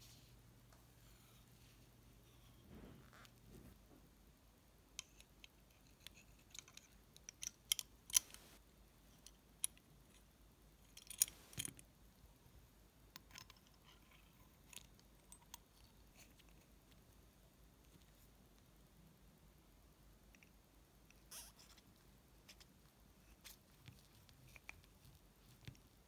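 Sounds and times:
metal parts clicking and tapping: 5.0s - 8.5s, 10.9s - 11.8s, 13.2s - 15.7s.

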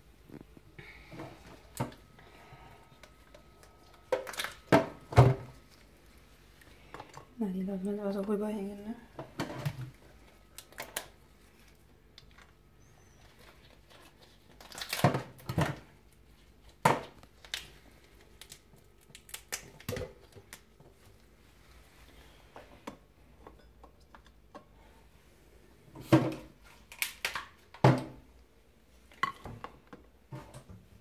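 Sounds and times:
lobster shell cracking: 14.6s - 15.0s, 18.4s - 20.0s.

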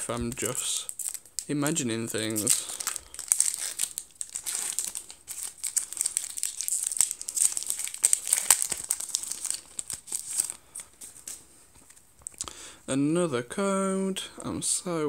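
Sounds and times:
foil wrapper crinkling and tearing: 0.0s - 11.4s.

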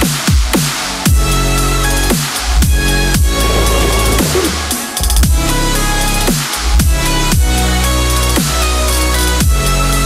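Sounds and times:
electronic dance music: 3.2s - 5.4s.

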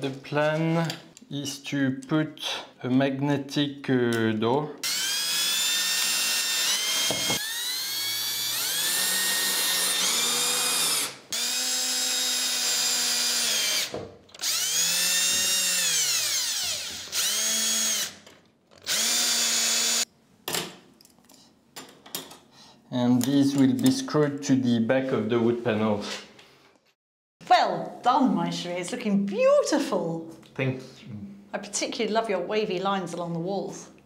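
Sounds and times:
cordless drill motor whine: 4.8s - 18.2s, 18.8s - 20.1s.

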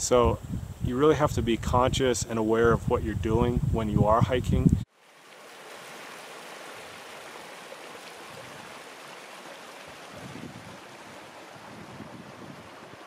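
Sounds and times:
water rushing over boulders: 4.9s - 13.0s.

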